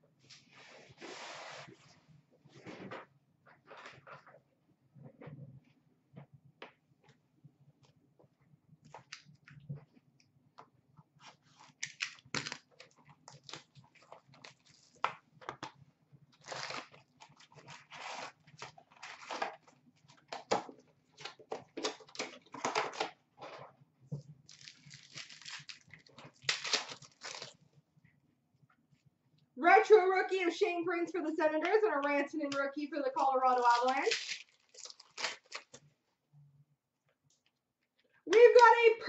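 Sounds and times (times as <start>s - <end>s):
foil packs crinkling and tearing: 11.6s - 15.1s, 16.4s - 20.6s, 24.4s - 27.6s, 33.5s - 35.8s.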